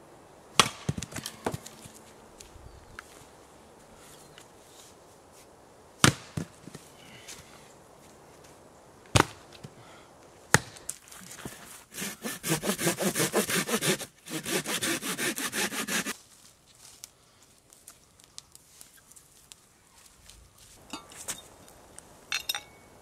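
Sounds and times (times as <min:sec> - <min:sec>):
axe chopping log: 0:00.6 - 0:01.9, 0:06.0 - 0:06.6, 0:09.2 - 0:09.4, 0:10.5 - 0:10.8
hand saw cutting branch: 0:11.3 - 0:16.2.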